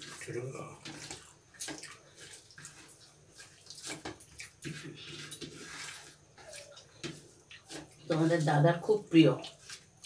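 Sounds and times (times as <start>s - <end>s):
wet chewing sounds: 0.0s - 8.1s
fingers mixing rice on plate: 0.0s - 8.5s.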